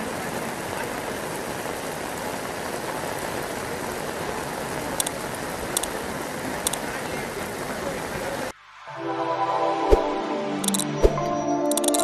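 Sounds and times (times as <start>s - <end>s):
heavy rain falling: 0.0s - 8.6s
sharp clicks: 5.0s - 5.9s, 6.6s - 6.8s, 10.6s - 10.9s, 11.7s - 12.0s.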